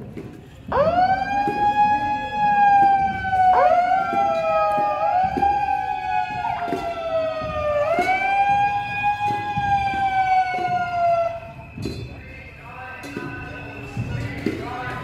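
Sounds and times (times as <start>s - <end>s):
siren wailing: 0.7s - 11.7s.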